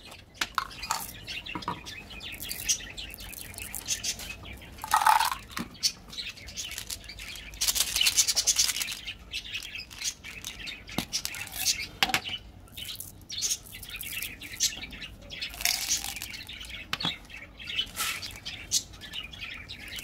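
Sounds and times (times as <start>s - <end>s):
plastic containers clicking: 0.4s - 1.8s, 4.8s - 5.7s
candy rattling inside: 0.6s - 1.2s, 4.8s - 5.6s, 6.5s - 11.9s, 15.5s - 16.5s.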